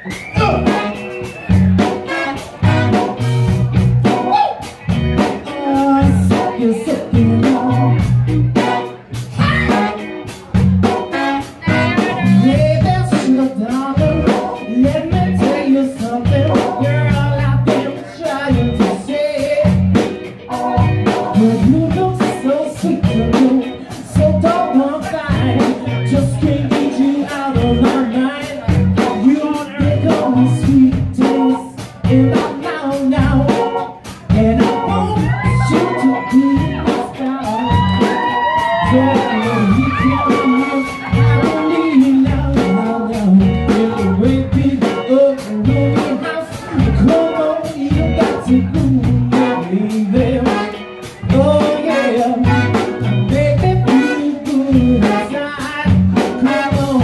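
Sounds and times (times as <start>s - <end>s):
man singing lead vocal: 0.0s - 3.2s, 4.0s - 57.0s
live band with horn section: 0.0s - 57.0s.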